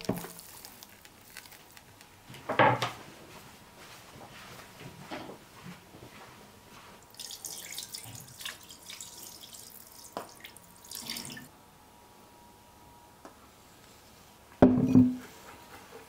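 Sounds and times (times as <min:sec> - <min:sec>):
water running over hands: 0:07.1 - 0:11.5.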